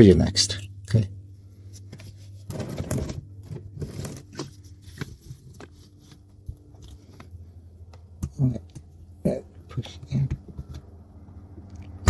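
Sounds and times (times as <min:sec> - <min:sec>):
steady low hum: 0:00.0 - 0:12.0
hands handling tools: 0:01.8 - 0:07.3.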